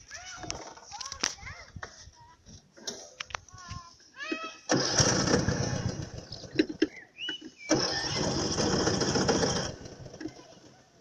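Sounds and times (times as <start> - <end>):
lawn mower engine cranking: 4.6 - 7.0, 7.7 - 10.9.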